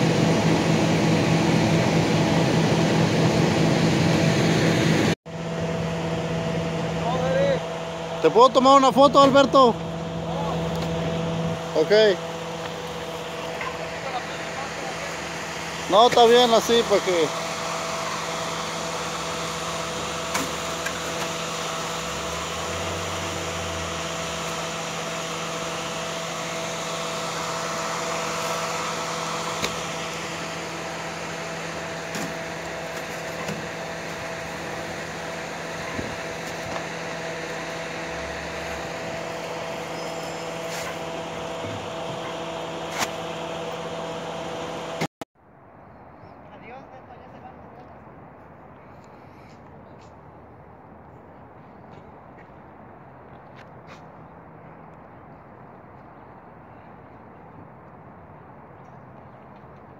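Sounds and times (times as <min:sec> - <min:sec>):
engine and conveyor hum: 0:00.0 - 0:45.1.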